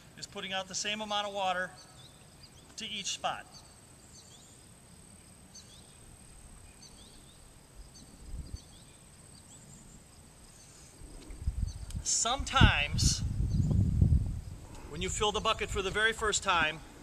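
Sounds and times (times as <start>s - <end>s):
bird chirps: 1.6s - 11.9s
insect drone: 3.6s - 12.0s.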